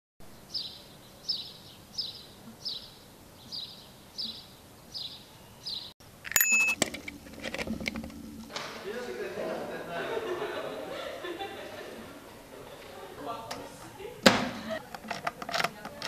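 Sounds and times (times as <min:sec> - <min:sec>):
small bird chirping: 0:00.4 - 0:06.8
bicycle bell ringing: 0:06.3 - 0:06.8.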